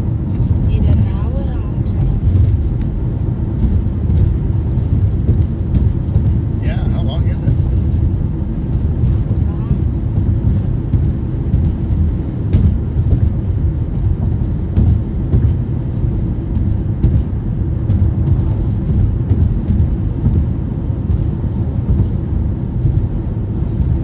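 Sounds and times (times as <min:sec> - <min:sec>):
car interior rumble: 0:00.0 - 0:24.0.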